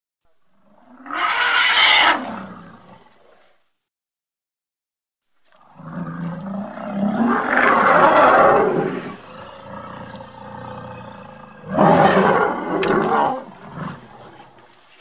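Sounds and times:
elephant roar: 0.6s - 3.1s, 5.6s - 14.7s.

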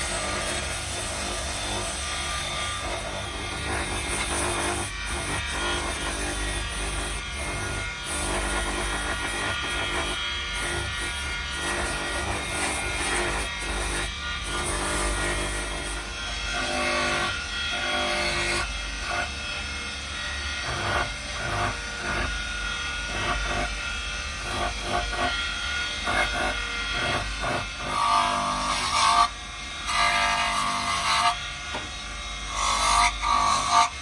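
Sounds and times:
abrasive disc sanding wood: 0.0s - 16.0s.

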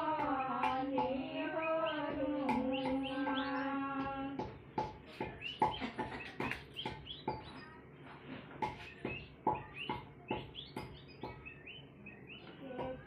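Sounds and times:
wooden pestle pounding on board: 2.1s - 7.6s, 8.6s - 11.7s.

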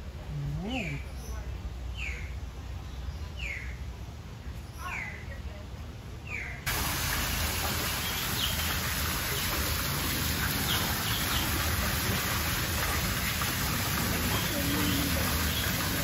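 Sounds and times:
running water rushing: 6.7s - 16.0s.

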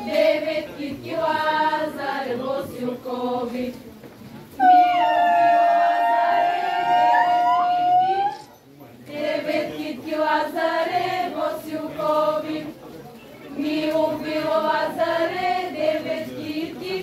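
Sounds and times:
girls singing folk song: 0.0s - 4.0s, 9.2s - 12.8s, 13.6s - 17.0s.

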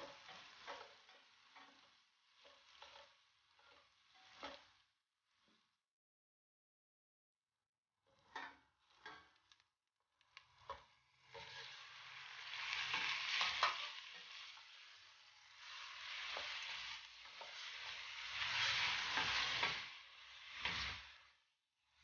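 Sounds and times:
meat sizzling in hot oil: 0.0s - 4.8s, 10.5s - 21.5s.

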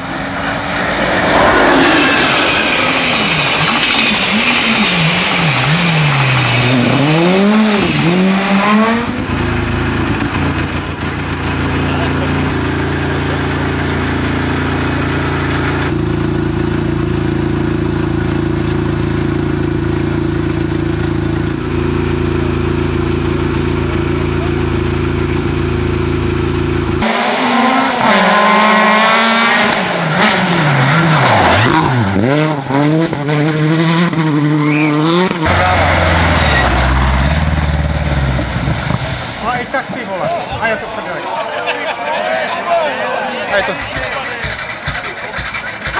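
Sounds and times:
car engine revving past: 0.0s - 9.2s, 27.0s - 39.9s
car engine idling: 0.0s - 27.0s, 34.6s - 41.4s, 43.3s - 45.9s.

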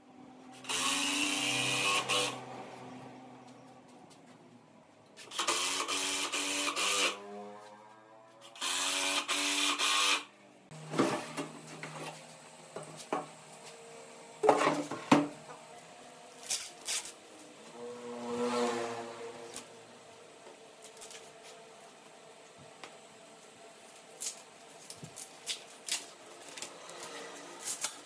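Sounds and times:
power tool motor whirring: 0.5s - 2.5s, 5.2s - 7.5s, 8.4s - 10.3s.

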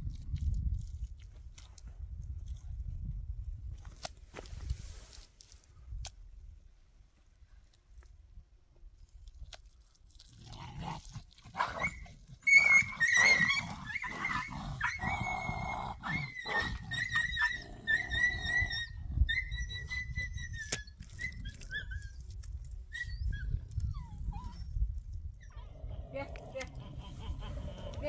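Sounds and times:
dog whining: 11.6s - 22.2s.

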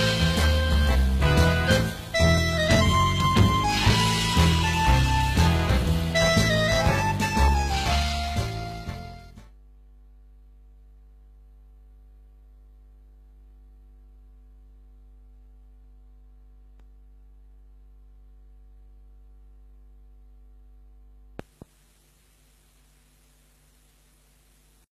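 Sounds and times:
electrical mains hum: 0.0s - 24.9s
faint hiss: 21.4s - 24.9s.

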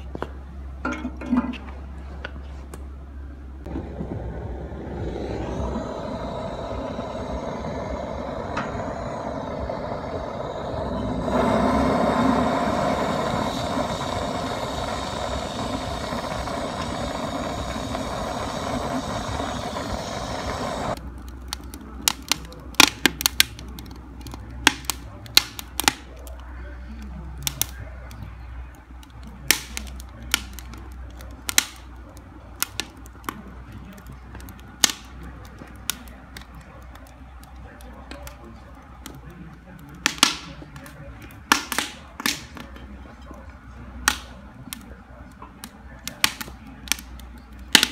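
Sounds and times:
gas torch hissing: 3.6s - 21.7s
wood fire crackling and popping: 3.6s - 47.9s.

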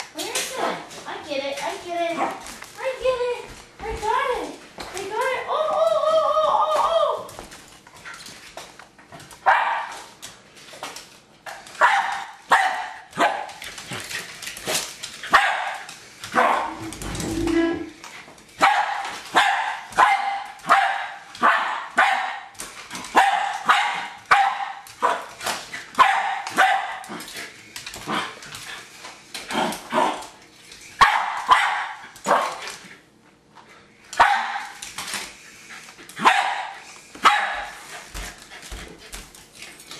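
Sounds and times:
dog barking sharply: 31.0s - 32.5s, 36.2s - 37.6s.

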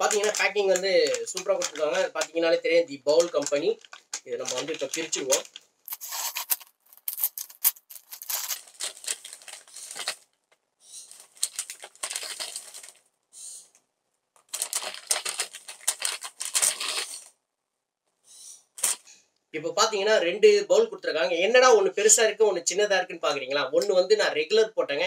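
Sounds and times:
paper bag rustling and crinkling: 0.0s - 2.2s, 3.2s - 10.2s, 11.1s - 13.0s, 14.5s - 17.3s.

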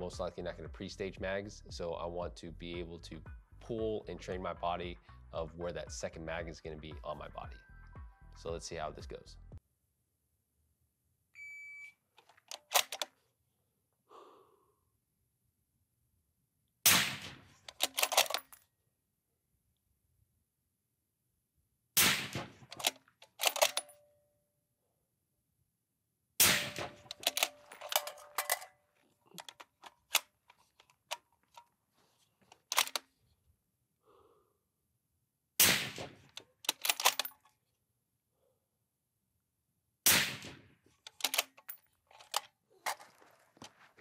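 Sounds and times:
metallic clicks of rifle handling: 12.2s - 13.2s, 17.6s - 18.6s, 22.6s - 24.0s, 26.7s - 31.7s, 32.4s - 33.2s, 36.2s - 37.6s, 41.0s - 43.7s
suppressed rifle shots: 16.9s - 17.6s, 22.0s - 22.8s, 26.4s - 28.4s, 35.6s - 36.3s, 40.1s - 40.6s.

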